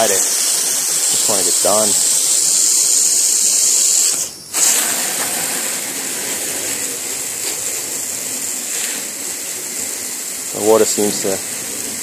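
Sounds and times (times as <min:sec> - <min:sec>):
hose spray hissing: 0:00.0 - 0:12.0.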